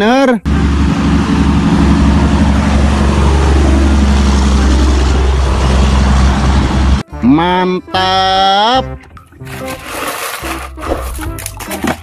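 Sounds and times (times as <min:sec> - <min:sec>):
road and tyre noise: 0:00.0 - 0:07.0
truck engine drone: 0:00.0 - 0:12.0.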